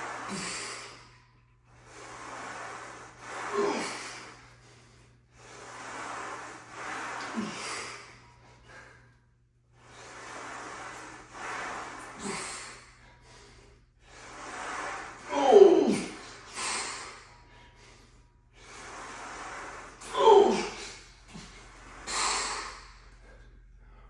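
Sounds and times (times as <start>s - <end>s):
man breathing hard: 0.0s - 24.0s
man grunting: 15.3s - 16.2s, 20.0s - 21.5s.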